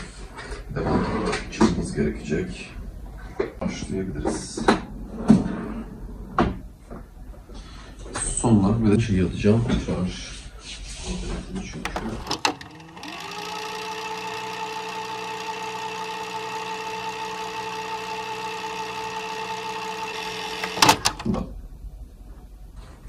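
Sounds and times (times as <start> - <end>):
tape machine clicks: 11.8 - 21.5
tape motor whirring: 11.9 - 21.4.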